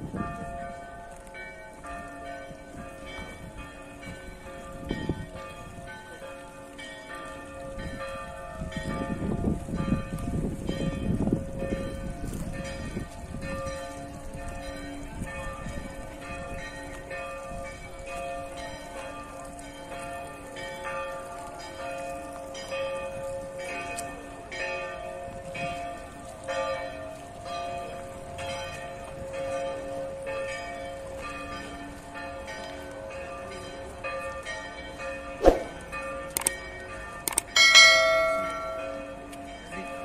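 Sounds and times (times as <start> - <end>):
church bells ringing: 0.0 - 40.0
sharp click: 37.3 - 37.5.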